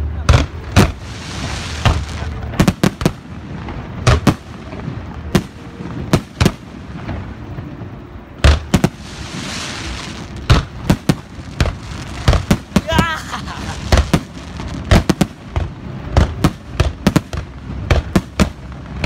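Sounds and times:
firework bangs: 0.1 - 19.0
steady hiss: 0.4 - 19.0.

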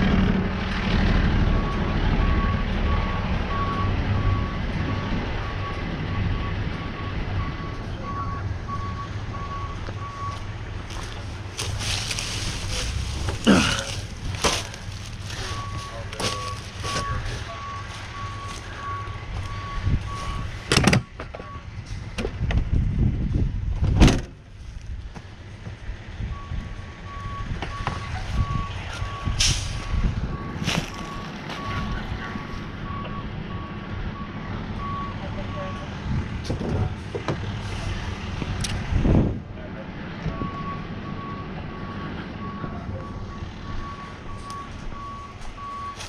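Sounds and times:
low engine rumble: 0.0 - 46.0
truck backup alarm beeping: 1.4 - 11.2, 14.6 - 21.7, 26.2 - 37.0, 40.2 - 46.0.

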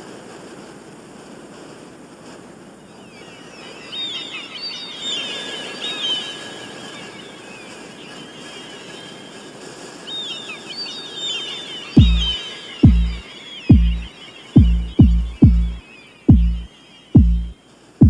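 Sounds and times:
outdoor noise bed: 0.0 - 18.0
bird chirps and twitters: 3.0 - 9.4, 10.0 - 17.6.

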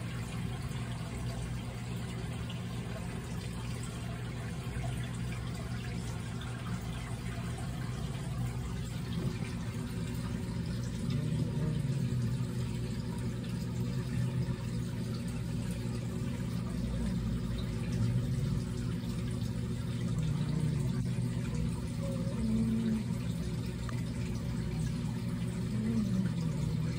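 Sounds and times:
faint wavering tones: 0.0 - 26.9
steady low hum: 0.0 - 26.9.

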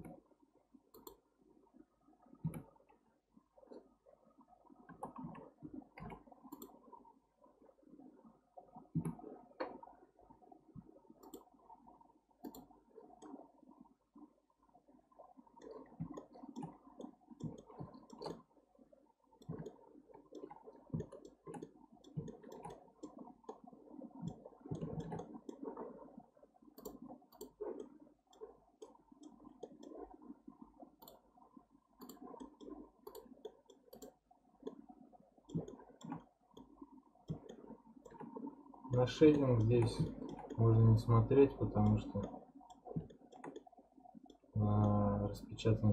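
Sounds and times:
computer mouse clicking: 0.9 - 1.2, 6.0 - 6.8, 11.2 - 11.5, 12.4 - 13.4, 15.6 - 18.4, 19.4 - 23.6, 24.2 - 25.7, 26.8 - 30.0, 31.0 - 31.2, 32.0 - 34.8, 35.5 - 38.4, 39.2 - 40.6, 41.8 - 43.7.

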